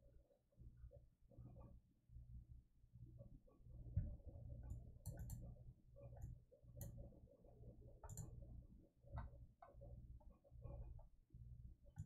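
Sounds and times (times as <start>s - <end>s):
low room hum: 0.0s - 12.0s
computer mouse clicks: 4.6s - 7.1s, 8.0s - 8.4s.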